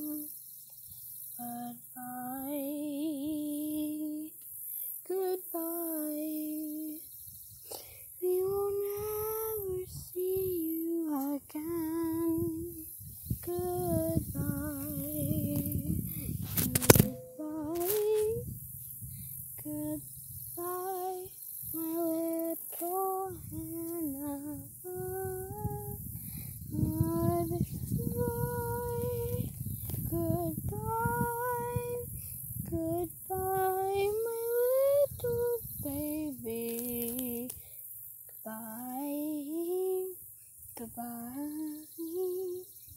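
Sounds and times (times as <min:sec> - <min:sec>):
child singing long notes: 0:08.2 - 0:12.8, 0:16.6 - 0:18.5, 0:20.6 - 0:26.0, 0:26.7 - 0:32.1, 0:32.7 - 0:37.5.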